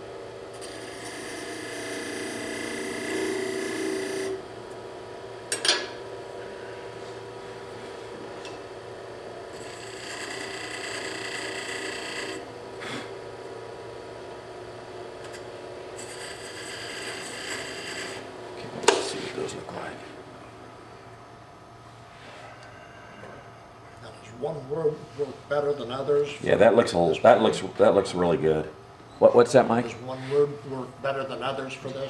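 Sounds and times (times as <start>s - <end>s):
lathe tool scraping wood: 0.6s - 4.4s, 9.5s - 13.1s, 16.0s - 18.3s.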